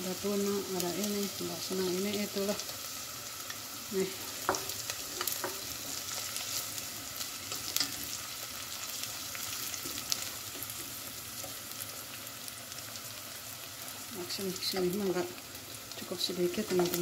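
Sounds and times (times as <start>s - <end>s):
hot oil sizzling in a pan: 0.0s - 17.0s.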